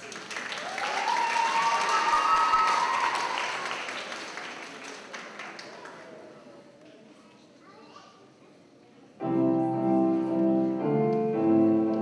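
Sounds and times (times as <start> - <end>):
crowd cheering: 0.0 - 4.5
audience applauding: 0.0 - 6.2.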